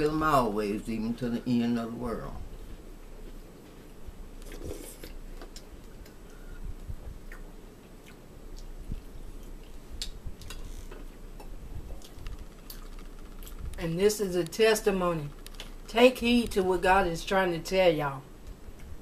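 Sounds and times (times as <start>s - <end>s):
chewing crackers: 12.0s - 13.6s
small clicks and crackles: 12.0s - 13.8s, 15.3s - 16.5s.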